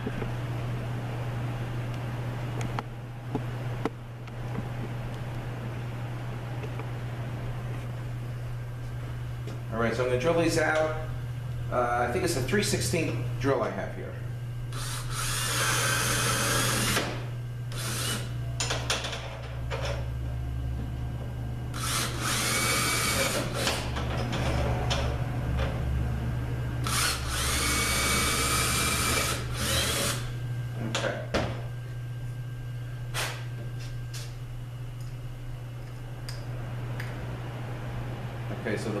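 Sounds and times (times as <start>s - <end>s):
steady low hum: 0.0s - 39.0s
cordless drill cutting metal: 14.8s - 17.1s, 17.7s - 18.3s, 21.8s - 23.8s, 26.8s - 30.2s.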